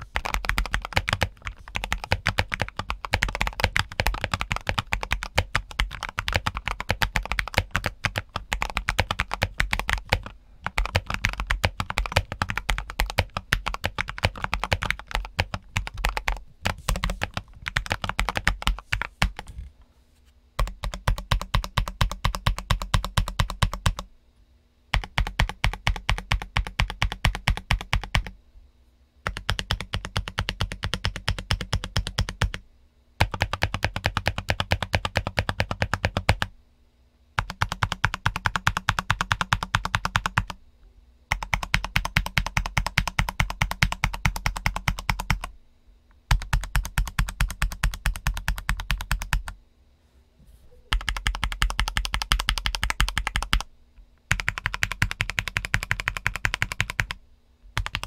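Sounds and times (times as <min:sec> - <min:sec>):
typing on mechanical keyboard: 0:00.0 - 0:19.5, 0:20.6 - 0:24.1, 0:24.9 - 0:28.3, 0:29.2 - 0:32.6, 0:33.2 - 0:36.5, 0:37.4 - 0:40.6, 0:41.3 - 0:45.5, 0:46.3 - 0:49.6, 0:50.9 - 0:53.7, 0:54.3 - 0:57.2, 0:57.8 - 0:58.0.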